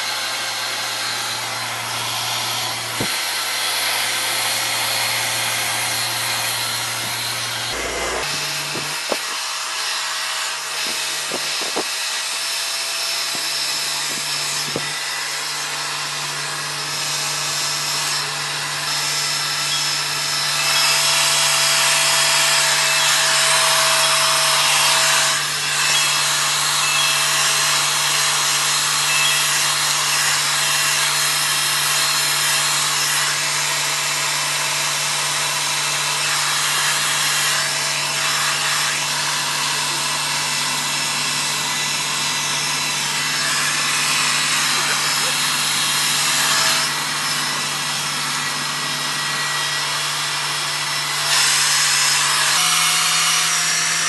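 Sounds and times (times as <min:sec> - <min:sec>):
hair dryer running: 0:00.0 - 0:12.4, 0:34.5 - 0:51.2.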